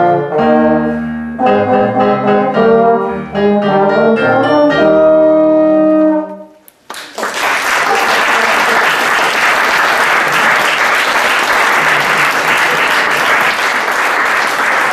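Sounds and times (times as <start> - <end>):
audience applauding: 6.8 - 14.9.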